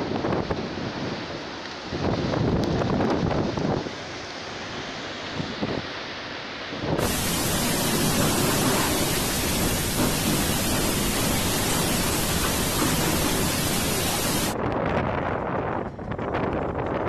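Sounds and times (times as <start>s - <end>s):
wind blasting microphone: 6.8s - 17.0s.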